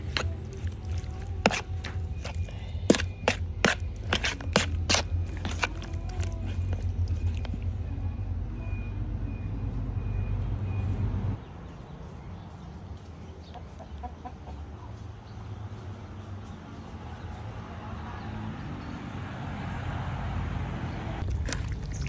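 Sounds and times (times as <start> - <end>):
spoon scraping plastic bowl: 0.0 - 7.5
wet squishing of meat: 0.0 - 7.7, 21.2 - 22.0
steady low rumble: 0.0 - 11.4.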